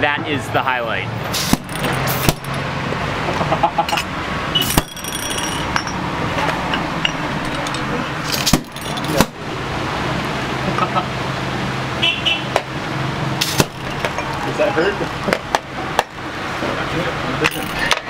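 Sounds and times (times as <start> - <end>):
street and shop noise: 0.0 - 18.0
glass bottles popping open: 1.5 - 2.6, 3.9 - 6.1, 6.7 - 9.4, 13.4 - 14.4, 17.4 - 18.0.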